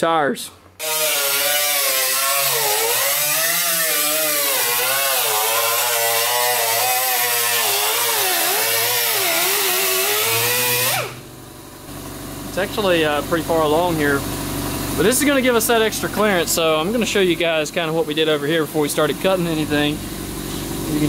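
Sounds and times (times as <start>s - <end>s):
pneumatic cutoff wheel cutting metal: 0.8s - 11.3s.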